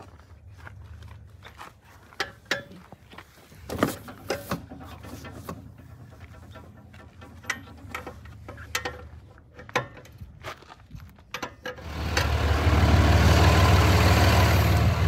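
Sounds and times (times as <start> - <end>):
truck engine running: 11.8 - 15.0.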